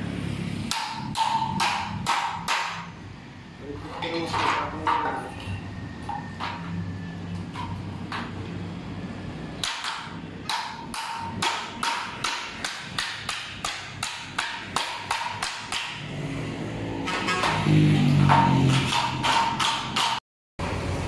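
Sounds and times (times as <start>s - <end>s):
hammer striking wooden block: 0.7s - 2.8s, 9.6s - 16.1s, 17.1s - 20.2s.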